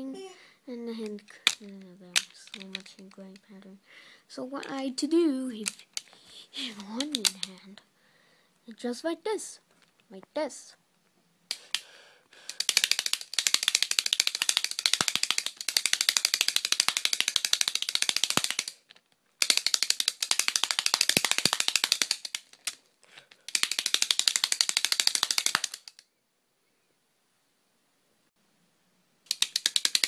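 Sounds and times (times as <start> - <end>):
plastic clapper rattling: 1.0 - 3.5, 5.5 - 7.6, 12.5 - 26.0, 29.3 - 30.0.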